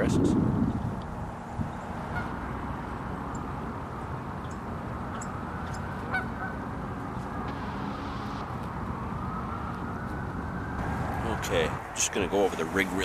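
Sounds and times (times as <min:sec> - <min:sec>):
geese honking: 0:02.0 - 0:02.8, 0:04.4 - 0:08.4.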